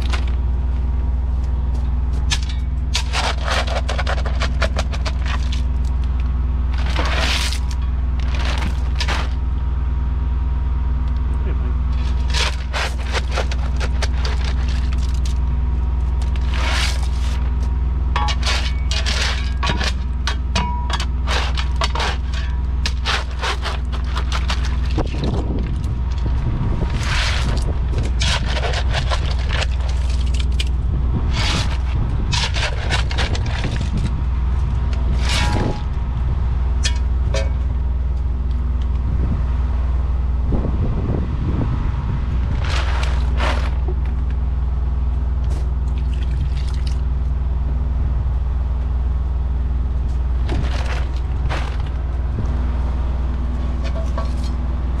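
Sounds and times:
engine humming: 0.0 - 55.0
scrapes and rustles: 1.5 - 9.4, 11.9 - 15.5, 16.1 - 36.0, 42.4 - 44.4, 50.0 - 52.6.

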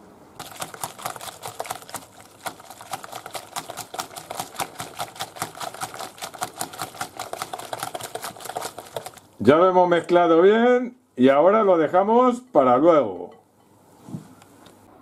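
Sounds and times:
whisk clicking against glass bowl: 0.4 - 9.2.

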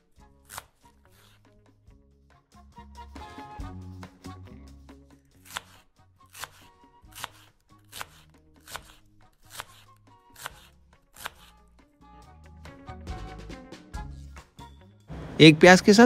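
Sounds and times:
background music: 0.0 - 16.0
knife chopping onion on wood: 5.5 - 11.5.

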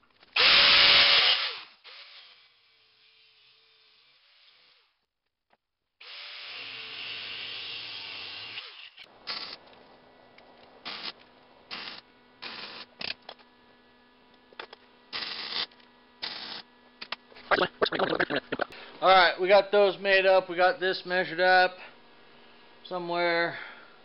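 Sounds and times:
faint steady hum: 9.1 - 24.0.

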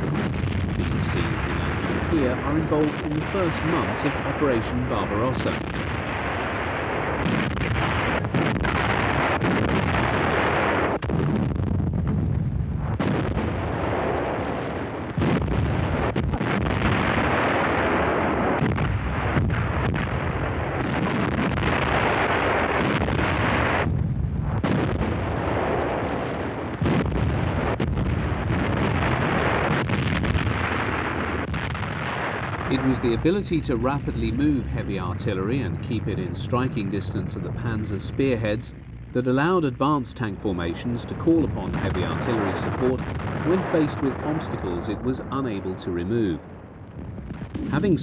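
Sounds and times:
artillery firing and explosions: 0.0 - 48.0.

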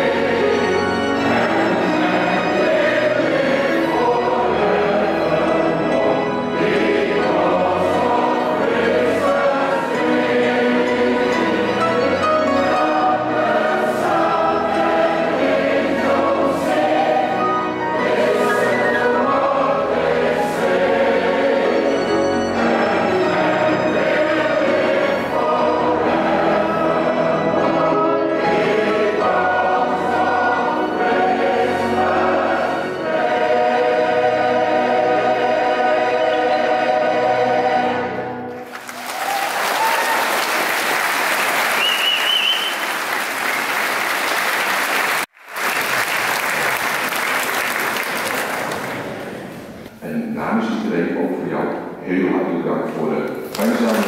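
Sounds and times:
choir singing with accompaniment: 0.0 - 38.9
audience applauding: 38.5 - 49.5, 53.4 - 54.0.

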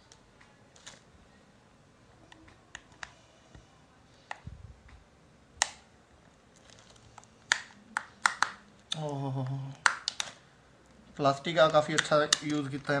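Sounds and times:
plastic clips clicking: 6.9 - 9.0, 9.8 - 10.4, 11.6 - 12.9.

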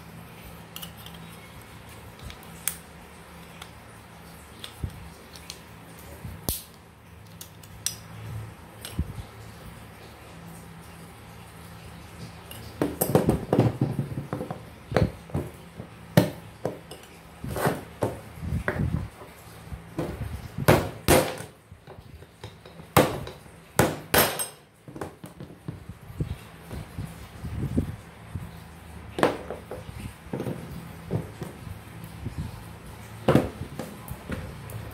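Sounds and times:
metal parts knocking and clinking: 12.5 - 15.6, 22.2 - 25.4.

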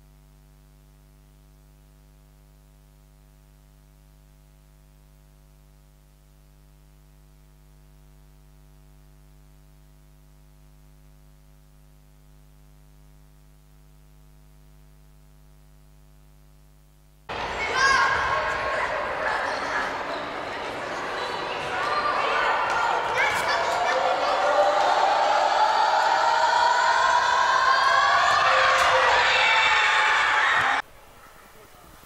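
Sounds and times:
mains hum: 0.0 - 32.0
faint microphone hiss: 28.8 - 32.0.

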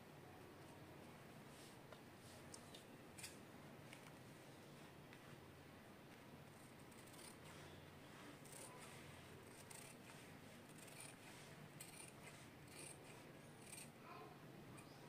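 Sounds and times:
scissors snipping cloth: 10.8 - 14.0.

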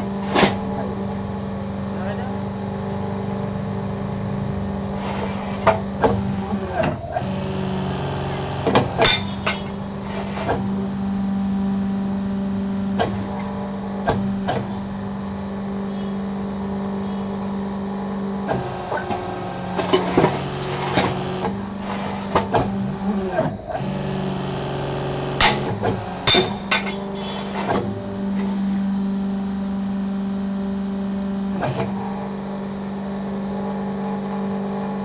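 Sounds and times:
motor and hydraulic pump humming: 0.0 - 35.0
sharp metal clanks: 9.0 - 9.7, 25.4 - 27.1.

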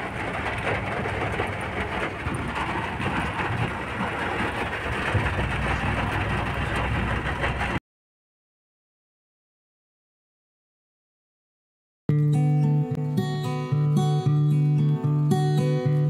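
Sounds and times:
car low rumble: 0.0 - 7.8
rain on a car: 0.0 - 7.8.

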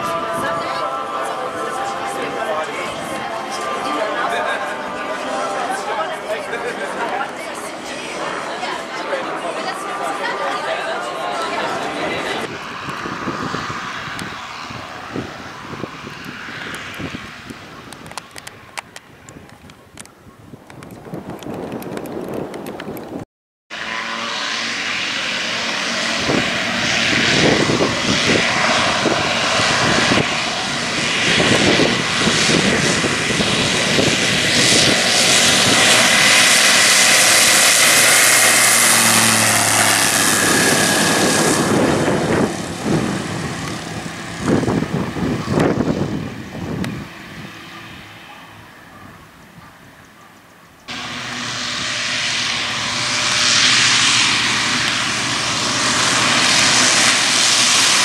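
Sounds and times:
wind on microphone: 0.0 - 1.2, 11.8 - 23.2, 26.0 - 50.2
light aircraft engine and propeller: 0.0 - 58.0.

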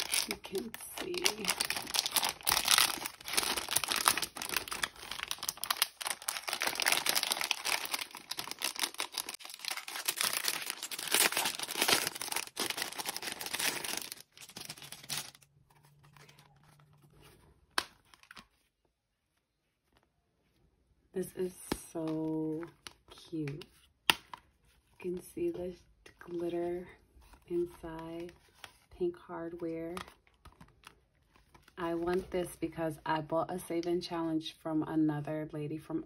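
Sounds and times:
plastic bag rustling and crinkling: 0.0 - 17.4.

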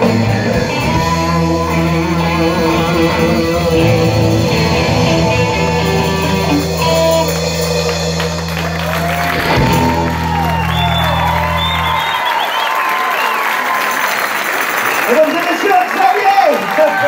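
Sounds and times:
lead guitar notes bending: 0.0 - 8.7
hard rock band playing: 0.0 - 12.3.

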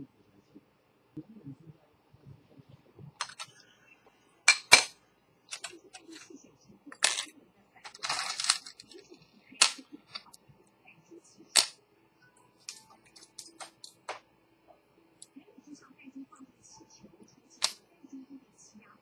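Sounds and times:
metal parts and tools clinking: 3.2 - 3.5, 4.5 - 4.9, 5.5 - 6.2, 7.0 - 7.3, 7.9 - 9.0, 9.6 - 10.4, 12.7 - 14.2.

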